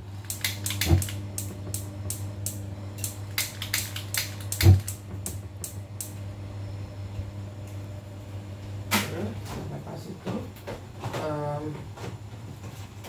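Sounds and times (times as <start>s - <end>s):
steady low hum: 0.0s - 12.9s
gas stove igniter clicks: 0.2s - 6.2s.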